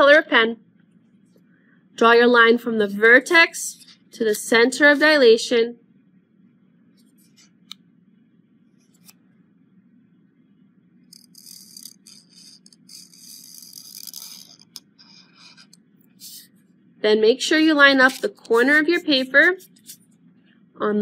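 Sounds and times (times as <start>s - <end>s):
pen scratching on paper: 11.1s - 16.5s, 17.4s - 20.1s.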